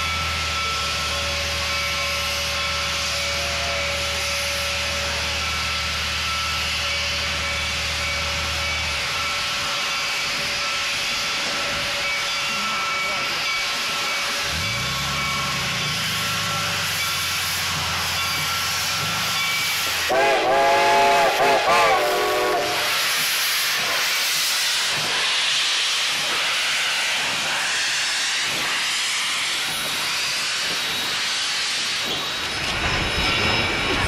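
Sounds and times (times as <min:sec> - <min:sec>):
steam chime whistle: 0:00.0 - 0:25.1
steam hissing: 0:00.0 - 0:34.0.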